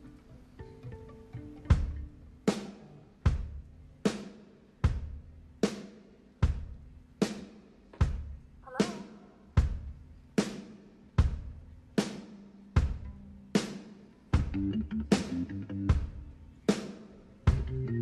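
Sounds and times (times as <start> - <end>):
slow drum beat: 1.6 - 18.0.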